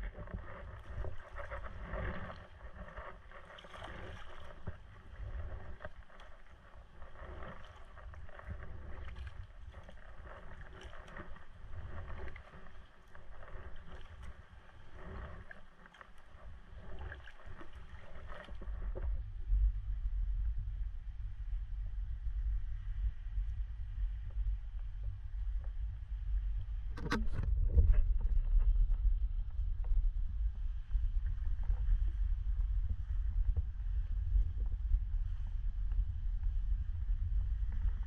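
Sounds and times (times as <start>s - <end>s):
kayak paddle splashing water: 0.1s - 19.0s.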